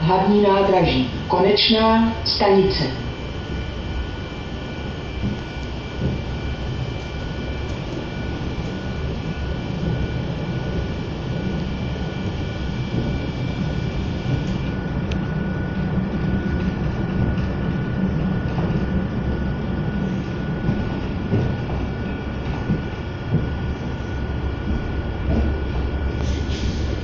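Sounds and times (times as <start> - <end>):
faint high whine: 0.0 - 16.5
train wheels rumbling: 0.0 - 27.0.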